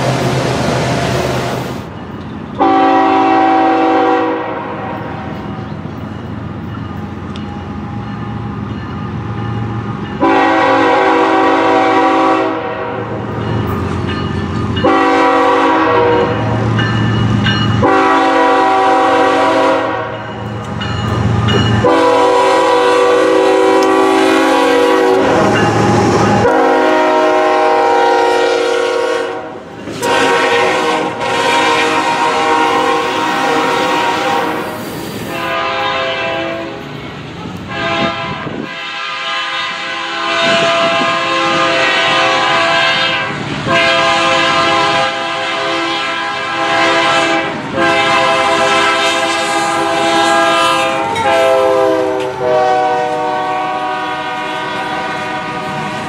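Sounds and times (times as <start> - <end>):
low rumble of running train: 0.0 - 56.0
train air horn blasts: 2.6 - 5.4, 10.2 - 13.3, 14.8 - 16.8, 17.8 - 20.4, 21.8 - 36.9, 37.7 - 56.0.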